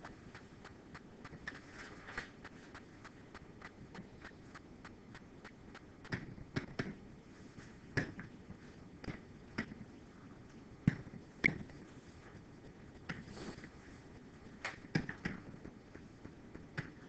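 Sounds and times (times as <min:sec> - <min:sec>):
faint ticking: 0:00.0 - 0:07.0
sharp clicks and taps: 0:00.0 - 0:07.0.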